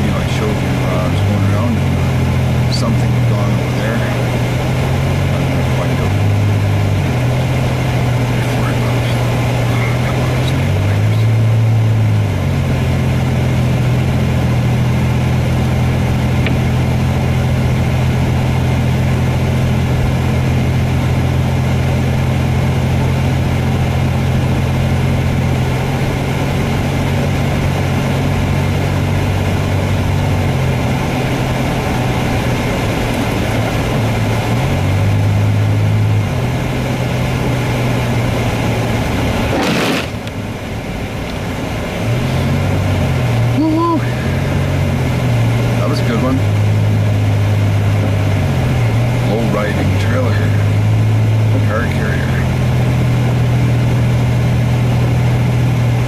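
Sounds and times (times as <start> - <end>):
car engine drone: 0.0 - 56.0
tyre noise: 39.4 - 40.4.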